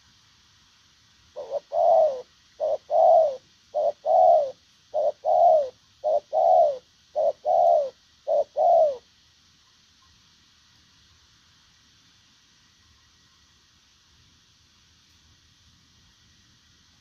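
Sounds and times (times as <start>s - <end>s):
dove cooing: 1.3s - 9.1s.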